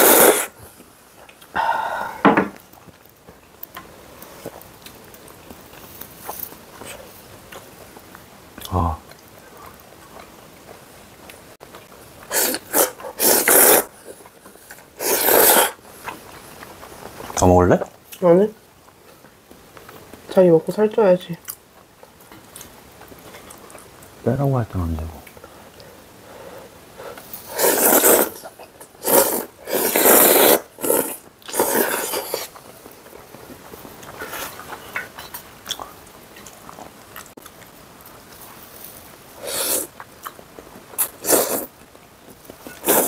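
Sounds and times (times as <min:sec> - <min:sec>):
person slurping noodles: 0:00.0 - 0:00.6, 0:12.3 - 0:15.8, 0:27.4 - 0:32.6, 0:39.4 - 0:40.0, 0:41.0 - 0:41.7, 0:42.7 - 0:43.0
soft mouth sounds: 0:12.3 - 0:15.8, 0:39.4 - 0:40.4.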